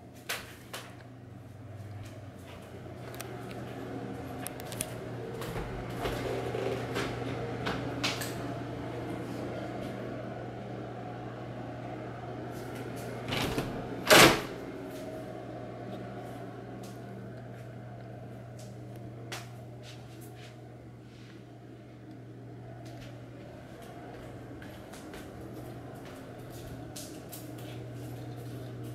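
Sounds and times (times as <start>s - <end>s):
steady low hum: 0.0s - 28.9s.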